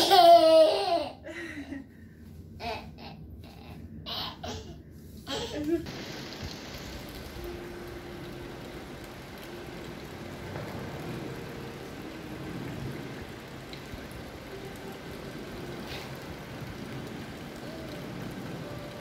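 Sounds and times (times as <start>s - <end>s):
fountain water splashing: 5.8s - 19.0s.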